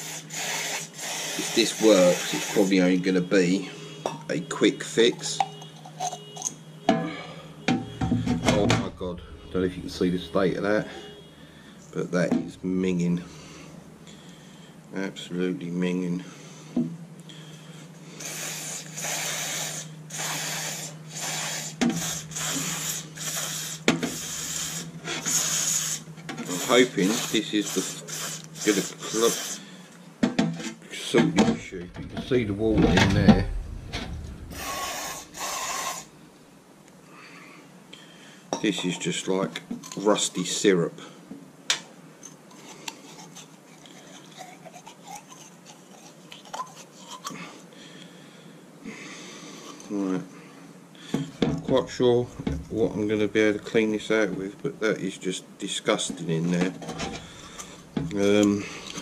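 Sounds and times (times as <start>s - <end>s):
aerosol spray bursts: 0.0s - 2.7s, 18.2s - 29.6s, 34.6s - 36.1s.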